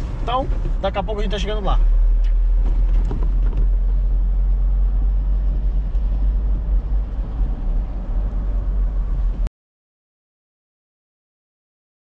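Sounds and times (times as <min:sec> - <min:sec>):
pickup truck engine rumble: 0:00.0 - 0:09.5
road noise: 0:00.0 - 0:09.5.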